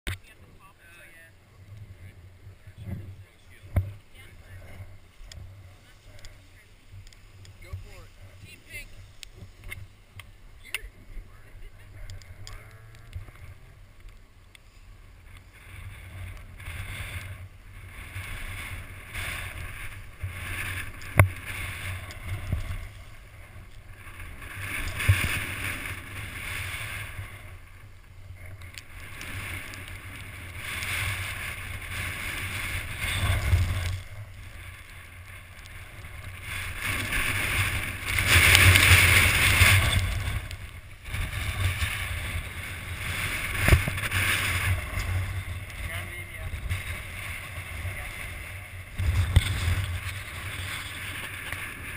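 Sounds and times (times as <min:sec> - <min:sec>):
wind rumbling on microphone: 0:00.1 - 0:51.9
skis hissing through snow: 0:35.8 - 0:51.9.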